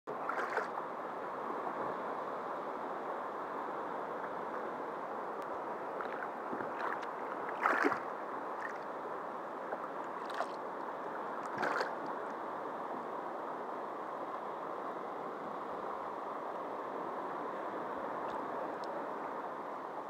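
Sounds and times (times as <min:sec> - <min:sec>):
paddle splashing: 0:00.1 - 0:00.8, 0:06.0 - 0:08.9, 0:09.7 - 0:10.6, 0:11.4 - 0:12.1
water rushing: 0:00.1 - 0:20.0.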